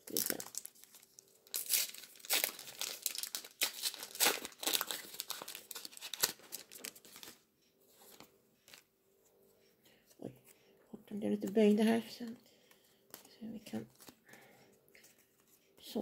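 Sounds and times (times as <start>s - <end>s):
foil pack crinkling and tearing: 0.0s - 7.4s.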